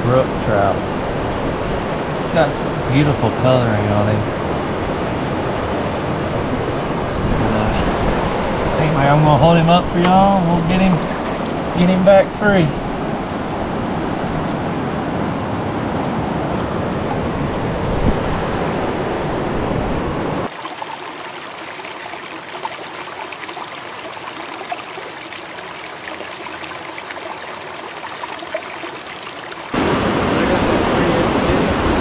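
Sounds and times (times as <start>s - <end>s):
water trickling and splashing: 9.8s - 14.7s, 20.5s - 32.0s
river water rushing over rocks: 20.5s - 32.0s.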